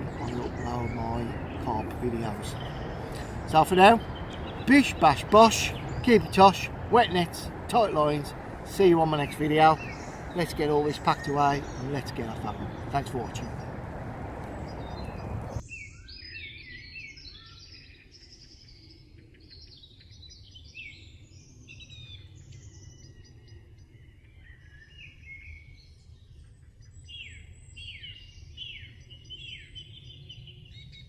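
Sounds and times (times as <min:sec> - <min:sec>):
steady low rumble: 0:00.0 - 0:15.6
birds chirping and singing: 0:00.0 - 0:23.1.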